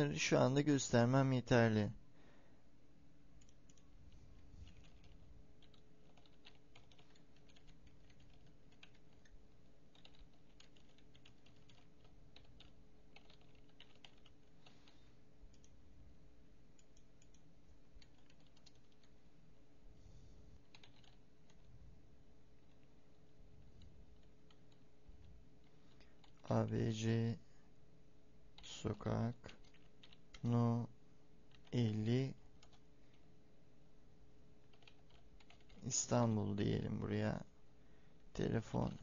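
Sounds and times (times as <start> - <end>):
faint hum: 0.0 - 39.0
computer keyboard typing: 3.4 - 3.9, 4.6 - 15.8, 16.8 - 19.2, 20.6 - 21.7, 22.6 - 23.2, 23.8 - 24.9, 25.6 - 26.5, 29.4 - 30.6, 31.5 - 32.0, 32.6 - 32.8, 34.6 - 35.9.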